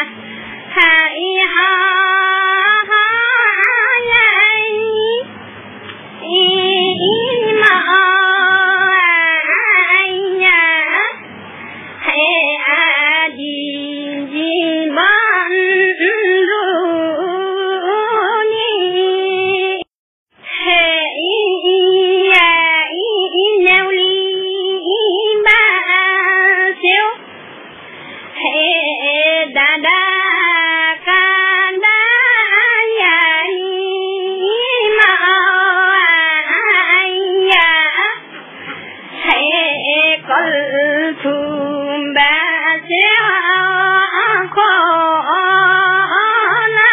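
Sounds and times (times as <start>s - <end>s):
high voice singing: 0.0s - 11.3s, 39.1s - 46.9s.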